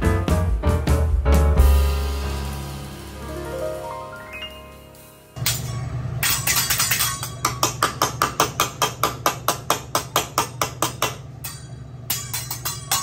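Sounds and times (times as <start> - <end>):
spatula and knife clacking: 5.4 - 13.0.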